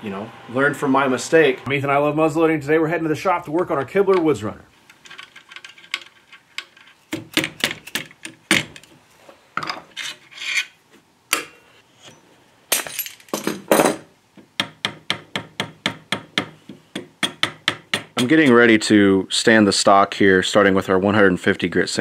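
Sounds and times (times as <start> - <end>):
hand tools scraping wood: 9.9 - 10.8.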